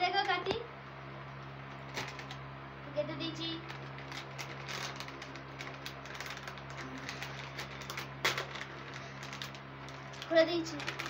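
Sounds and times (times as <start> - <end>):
packaging pouch crinkling: 1.8 - 2.4, 3.6 - 11.0.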